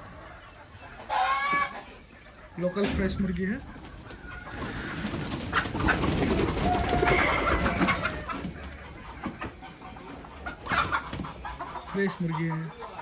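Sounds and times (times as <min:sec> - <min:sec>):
chickens calling: 0:00.0 - 0:13.0
wings flapping and scuffling: 0:03.6 - 0:11.4.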